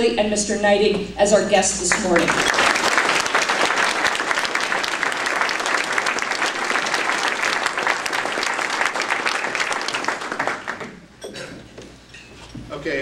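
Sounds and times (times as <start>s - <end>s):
audience applauding: 1.9s - 11.1s.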